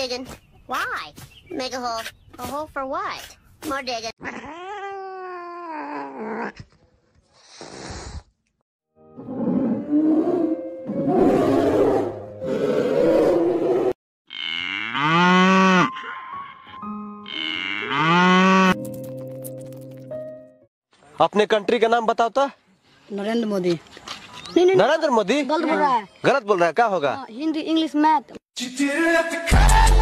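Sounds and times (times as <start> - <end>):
cattle mooing: 14.3 - 18.8.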